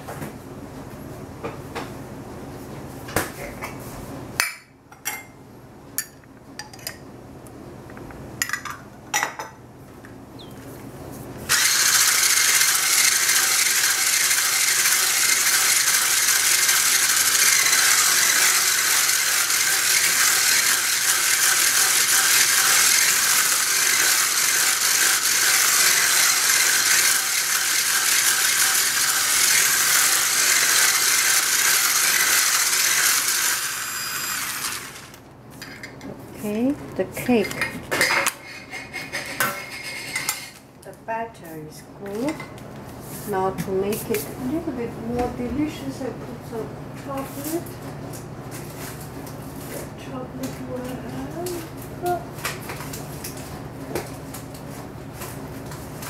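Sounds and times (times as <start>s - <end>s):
electric whisk whirring: 11.5s - 35.2s.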